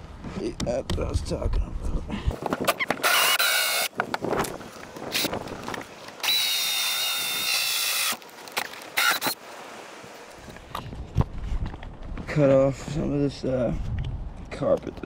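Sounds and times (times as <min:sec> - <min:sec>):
electric drill cutting wood: 0:03.0 - 0:03.9, 0:06.2 - 0:08.2, 0:09.0 - 0:09.4.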